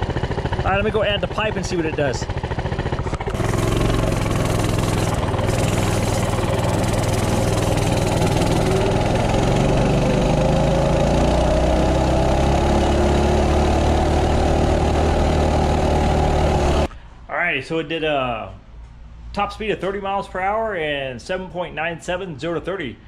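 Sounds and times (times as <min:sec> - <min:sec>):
minibike engine accelerating: 0:00.0 - 0:16.9.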